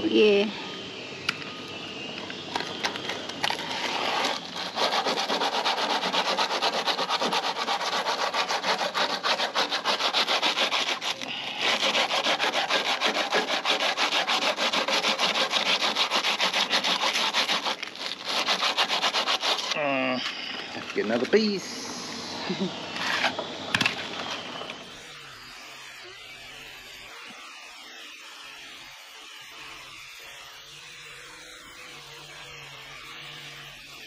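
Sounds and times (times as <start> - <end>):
abrasive paper rubbing in a bore: 2.6 - 23.4.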